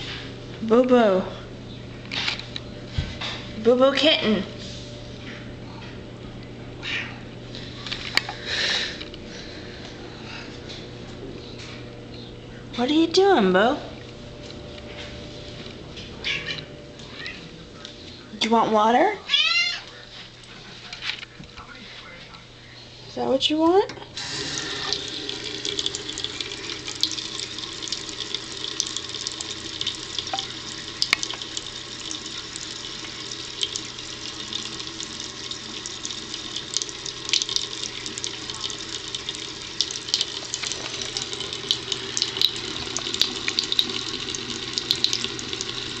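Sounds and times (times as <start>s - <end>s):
faucet water splashing into sink: 24.2s - 46.0s
cat lapping water: 24.3s - 46.0s.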